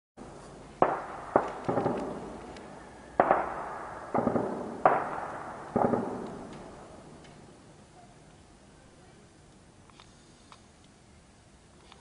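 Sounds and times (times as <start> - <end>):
gunshots echoing off buildings: 0.8 - 7.6.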